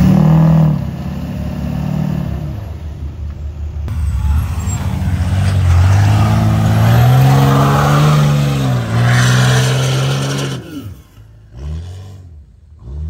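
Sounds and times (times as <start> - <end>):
diesel engine revving hard: 0.0 - 2.9, 3.9 - 13.0
tires spinning in snow: 3.9 - 13.0.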